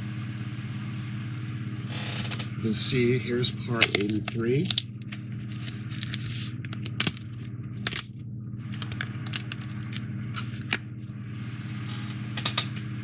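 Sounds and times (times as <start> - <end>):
low hum: 0.0 - 13.0
foam pieces clicking and snapping: 3.8 - 8.1, 8.8 - 10.8.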